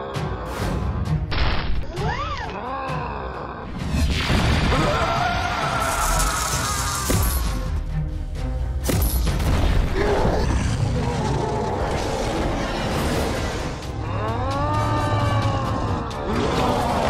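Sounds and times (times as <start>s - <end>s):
deep monster roar: 10.0s - 17.0s.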